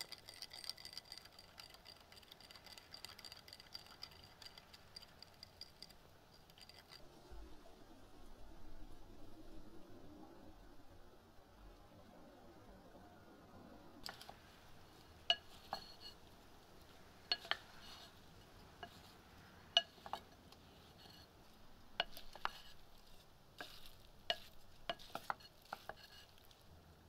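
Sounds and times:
wooden spoons knocking ceramic bowl: 22.0 - 22.7, 23.6 - 26.2.

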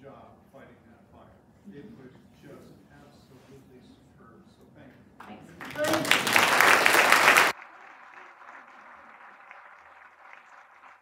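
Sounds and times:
faint room murmur: 0.0 - 10.2
audience applauding: 5.6 - 11.0.

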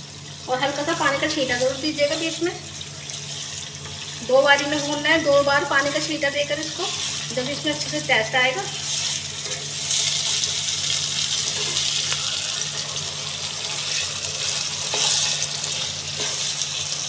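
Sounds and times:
meat sizzling in a pan: 0.0 - 17.0
spatula scraping a pan: 8.8 - 10.6, 11.2 - 12.9, 13.5 - 16.9.

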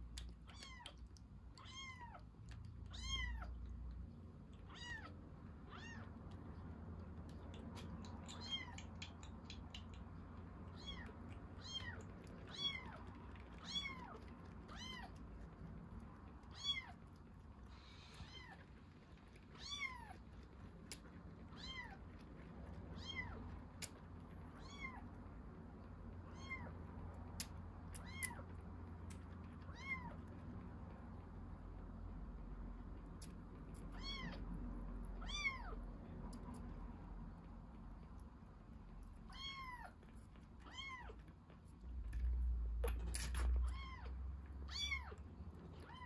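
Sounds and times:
sharp little clicks: 7.3 - 11.4.

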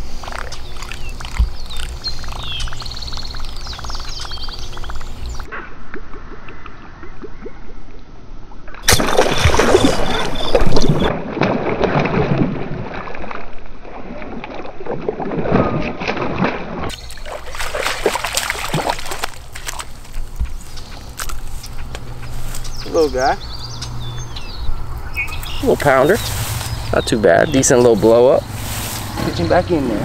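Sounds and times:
fish splashing in water: 0.0 - 5.5, 8.8 - 22.8.

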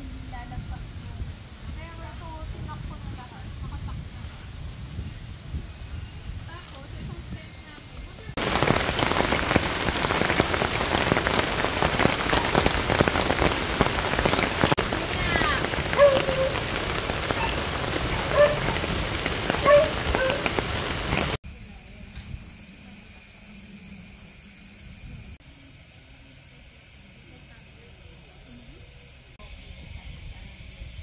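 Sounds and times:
heavy rain on a tarp: 8.3 - 21.4
water splashing off tarp edge: 8.4 - 21.4.

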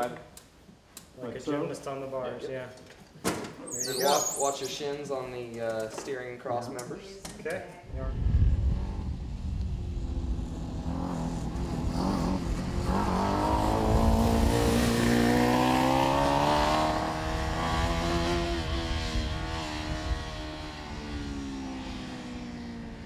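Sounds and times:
race car engine revving: 8.5 - 22.4.

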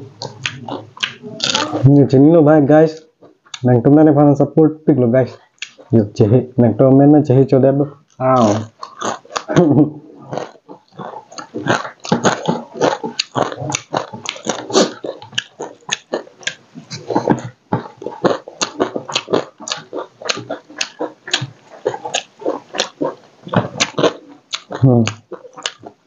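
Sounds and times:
wet chewing and lip smacking: 0.0 - 1.8, 3.0 - 3.7, 5.3 - 6.0, 8.0 - 26.0.

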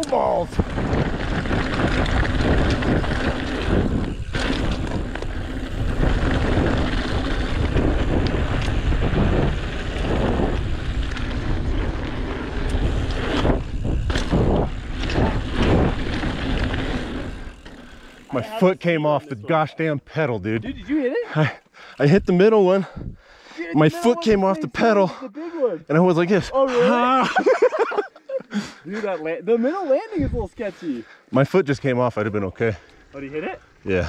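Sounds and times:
bike tyres rolling on dirt: 0.0 - 21.0
wind on microphone: 0.3 - 17.6.

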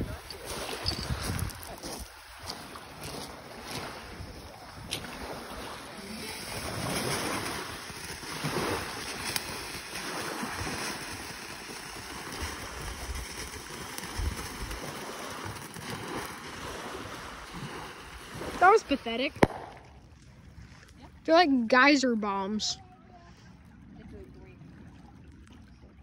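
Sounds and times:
fountain fireworks hissing: 5.8 - 19.9
faint pops: 19.4 - 20.0.

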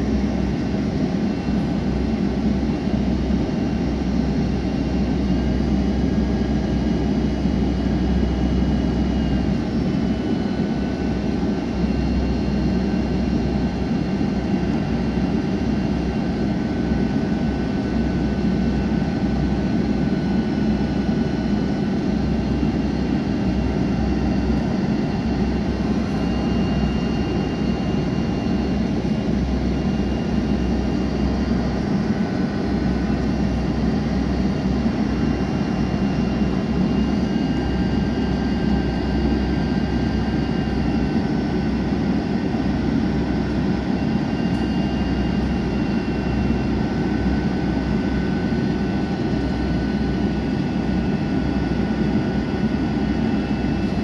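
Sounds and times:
jet engine and airflow roar: 0.0 - 54.0.

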